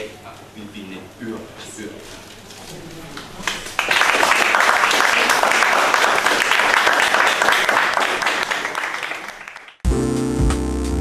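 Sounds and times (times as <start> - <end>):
audience applauding: 3.4 - 9.8.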